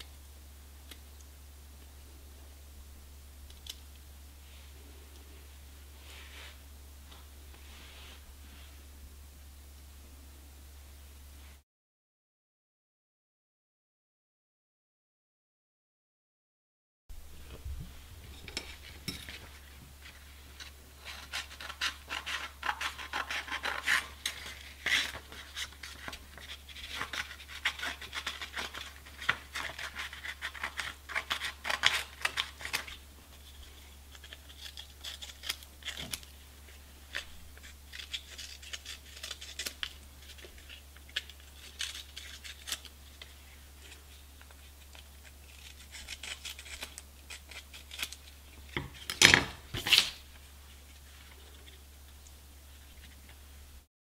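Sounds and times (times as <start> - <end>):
scissors cutting sandpaper: 20.6 - 33.5, 34.1 - 49.2.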